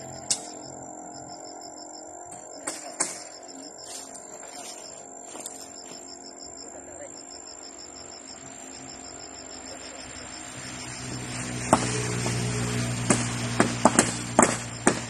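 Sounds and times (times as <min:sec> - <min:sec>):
insect chirping trill: 0:00.0 - 0:15.0
sharp knocks on post: 0:13.1 - 0:15.0.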